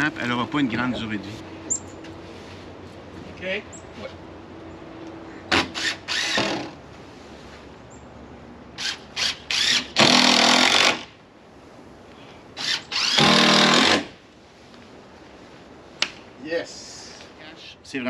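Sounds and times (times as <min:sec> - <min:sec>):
power drill driving screws: 0:05.5 - 0:06.8, 0:08.8 - 0:11.1, 0:12.6 - 0:14.1.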